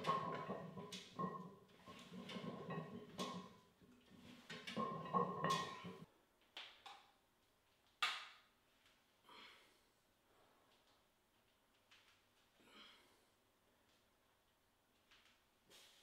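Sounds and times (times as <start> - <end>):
weight machine clanking: 0.0 - 3.6, 4.2 - 6.0.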